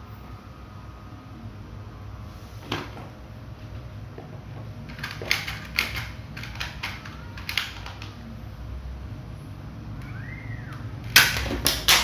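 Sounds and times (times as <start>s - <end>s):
plastic toy gun clicks: 4.9s - 8.2s.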